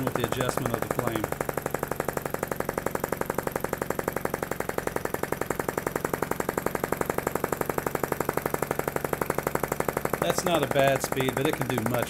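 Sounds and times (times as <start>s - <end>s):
small engine clacking: 0.0s - 12.0s.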